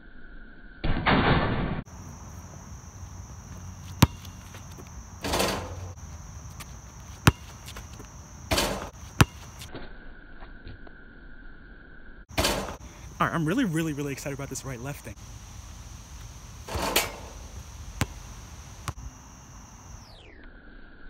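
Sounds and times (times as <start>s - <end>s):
basketball bouncing on court: 3.5s - 9.7s, 16.7s - 19.0s
ball clattering on rim: 5.2s - 6.0s, 8.5s - 9.4s, 12.4s - 12.8s, 16.7s - 18.2s.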